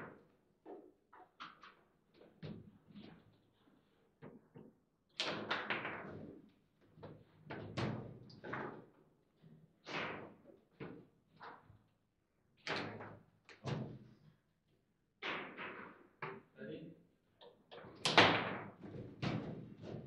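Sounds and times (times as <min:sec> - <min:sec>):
foosball ball knocks and clacks: 0:04.2 - 0:06.3, 0:15.2 - 0:16.5, 0:17.4 - 0:20.0.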